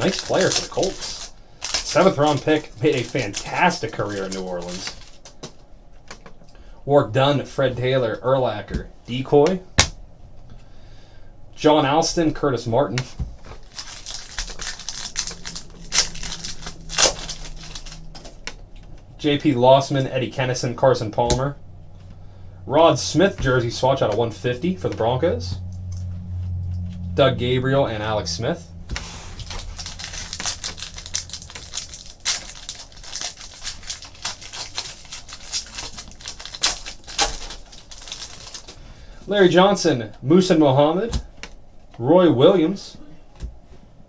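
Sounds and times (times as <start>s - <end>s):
foil wrappers crinkling and tearing: 0.0s - 5.5s, 13.4s - 18.9s, 29.0s - 39.2s.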